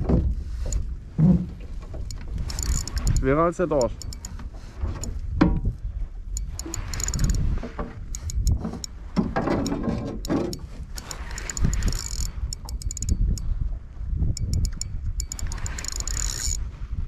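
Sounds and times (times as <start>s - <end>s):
wind buffeting microphone: 0.0s - 17.0s
fishing reel clicking: 2.0s - 4.4s, 6.4s - 7.5s, 8.1s - 8.9s, 9.6s - 13.5s, 14.4s - 16.6s.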